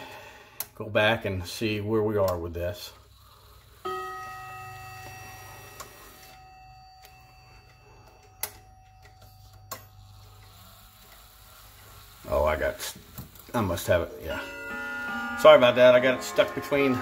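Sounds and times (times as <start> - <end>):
chime rod ringing: 3.8 - 10.4.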